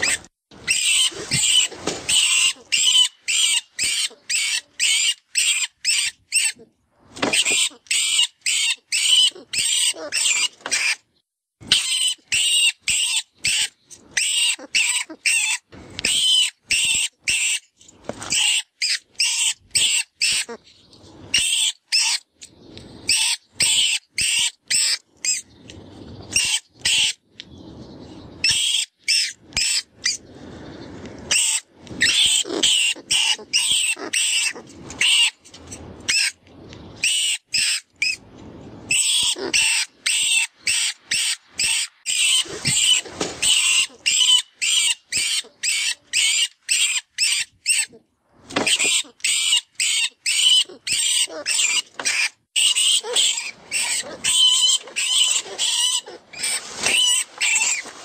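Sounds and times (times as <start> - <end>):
shrill rat distress squeals: 0.0 - 6.6, 7.3 - 11.0, 11.7 - 17.6, 18.3 - 20.6, 21.3 - 22.2, 28.4 - 30.2, 31.3 - 35.4, 38.9 - 48.0, 48.7 - 57.9.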